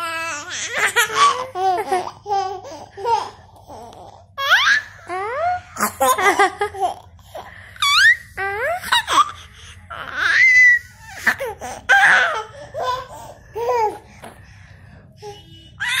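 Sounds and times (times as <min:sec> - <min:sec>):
child laughing and squealing: 0:07.8 - 0:11.0.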